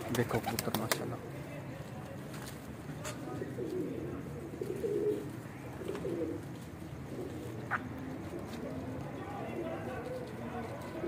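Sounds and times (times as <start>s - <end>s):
pigeons cooing: 3.1s - 11.0s.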